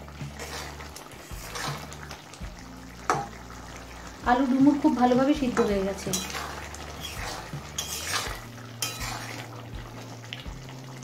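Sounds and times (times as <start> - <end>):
spatula scraping metal pan: 0.2 - 2.0, 5.5 - 9.6
spatula stirring thick curry: 0.2 - 2.3, 5.5 - 10.0.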